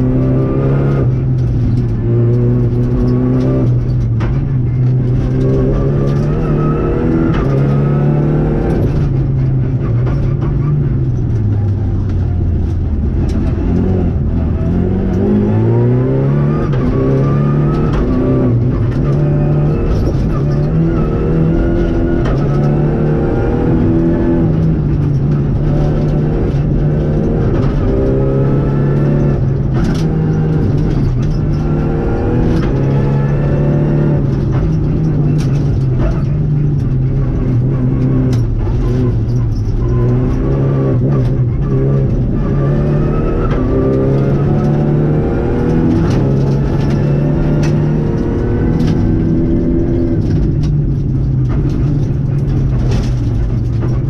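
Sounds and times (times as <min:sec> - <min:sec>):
turbocharged car engine revving: 0:00.0 - 0:54.0
sharp clicks and knocks from car: 0:00.1 - 0:54.0.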